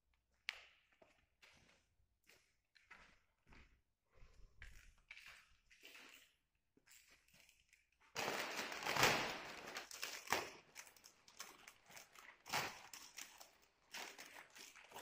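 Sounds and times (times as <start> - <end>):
soft footsteps: 0.2 - 7.2
plastic wrapping crinkling: 6.9 - 15.0.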